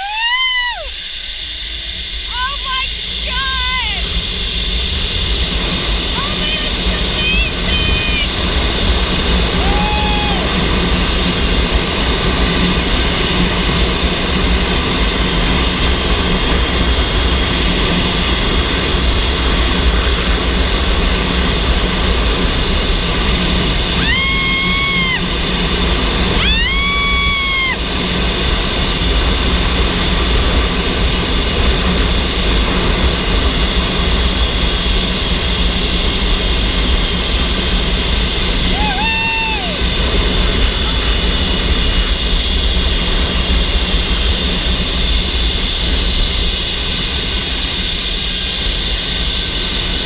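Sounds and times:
person shouting with delight: 0.0s - 0.9s, 9.5s - 10.6s, 24.0s - 25.3s, 26.4s - 27.8s, 38.7s - 39.9s
zipline pulleys whining: 0.0s - 50.0s
wind rushing over microphone: 0.8s - 50.0s.

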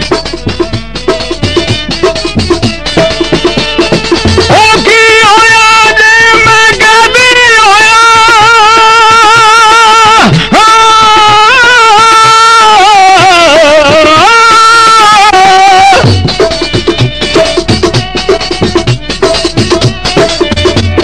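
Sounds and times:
man singing long high notes: 4.4s - 16.3s.

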